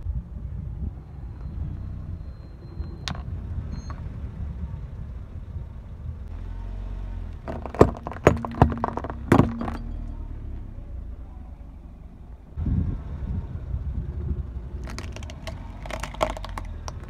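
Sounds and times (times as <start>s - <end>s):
low car rumble: 0.0s - 17.0s
clay pots cracking under tyre: 7.4s - 10.1s, 14.8s - 17.0s.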